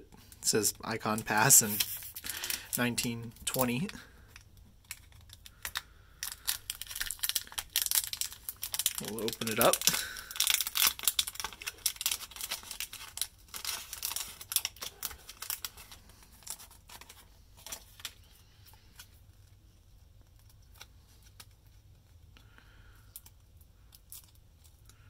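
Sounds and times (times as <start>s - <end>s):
plastic bag crinkling and tearing: 1.1s - 19.2s.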